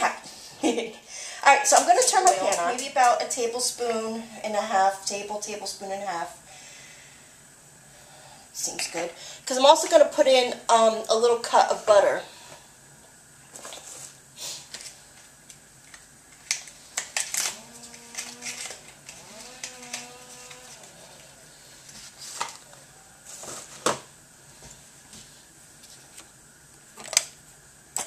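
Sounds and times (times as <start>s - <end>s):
cartons handled and opened: 21.9s - 24.1s.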